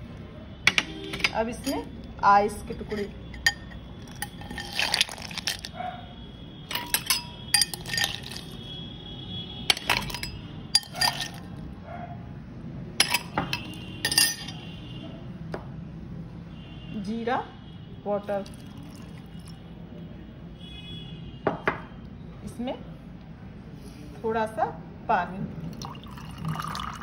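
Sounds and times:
ice cubes clinking into glass: 2.8s - 5.8s, 6.7s - 8.6s, 9.7s - 11.5s, 13.0s - 14.6s.

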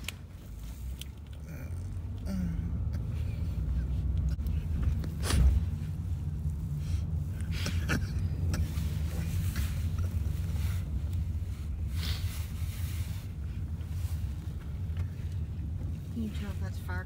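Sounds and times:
car engine rumble: 0.0s - 17.0s
road noise inside car: 0.0s - 17.0s.

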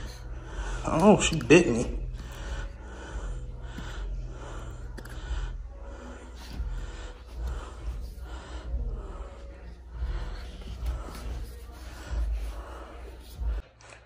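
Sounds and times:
man breathing heavily: 0.0s - 14.0s.

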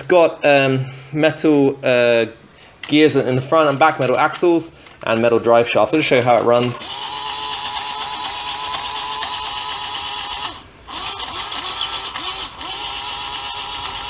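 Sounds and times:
electric motor gear whine: 6.7s - 14.0s.

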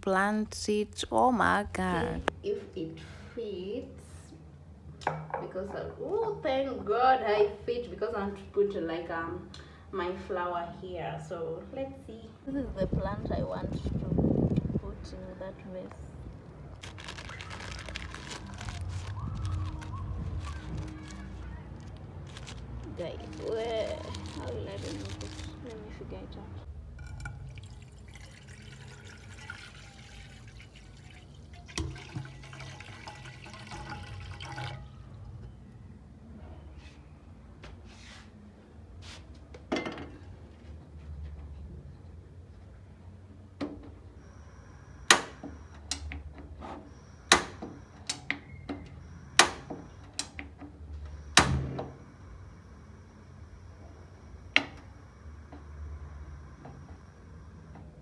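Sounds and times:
water running: 27.0s - 35.3s.

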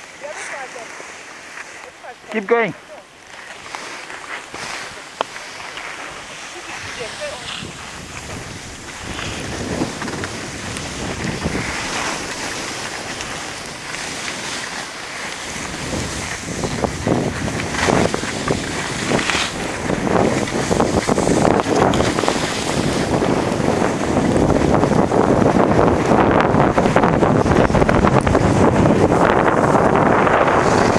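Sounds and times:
skis scraping on snow: 0.0s - 30.9s
wind buffeting microphone: 3.1s - 30.9s.

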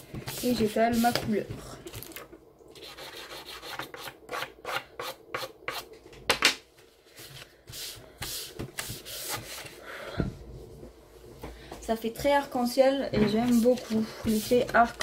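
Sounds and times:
tissue rubbing pastel on paper: 7.1s - 9.8s, 13.5s - 14.8s.

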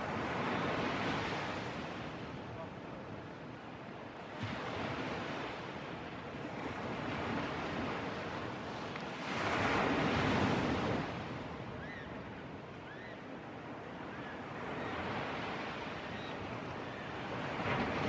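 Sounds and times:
sea surf breaking: 14.6s - 18.0s.

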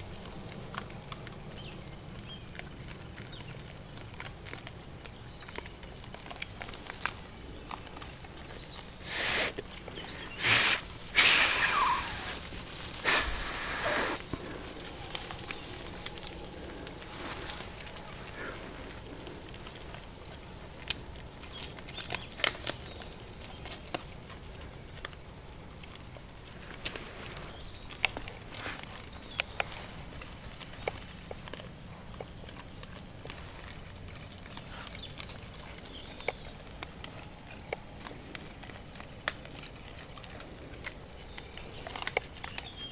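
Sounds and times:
faint clicks and rustles: 0.0s - 42.9s
young wild boars squealing: 9.0s - 9.6s, 10.2s - 14.2s.

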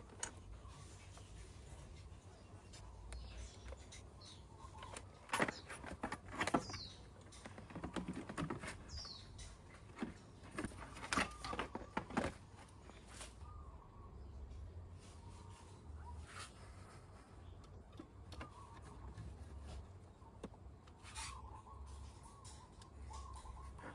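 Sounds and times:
bird chirping: 0.0s - 23.9s
plastic covers knocking and clicking: 9.9s - 12.7s.

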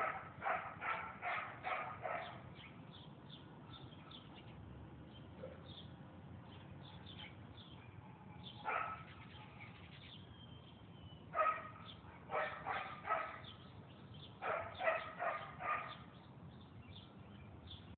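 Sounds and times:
dog barking: 0.0s - 2.5s, 7.9s - 9.5s, 11.4s - 13.5s, 14.4s - 16.1s
birds chirping faintly: 0.0s - 17.9s.

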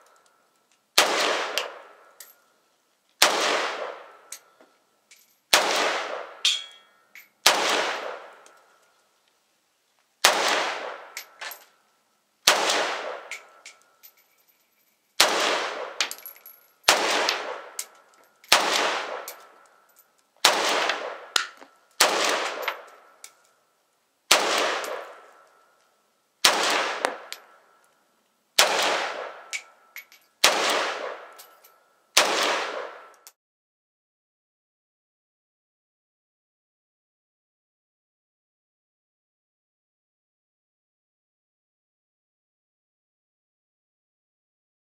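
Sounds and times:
rifle shots: 1.0s - 2.1s, 3.2s - 4.3s, 5.5s - 6.7s, 7.4s - 8.5s, 10.2s - 11.5s, 12.4s - 13.6s, 15.2s - 19.6s, 20.4s - 23.0s, 24.3s - 25.4s, 26.4s - 27.4s, 28.6s - 29.7s, 30.4s - 31.4s, 32.2s - 33.2s.

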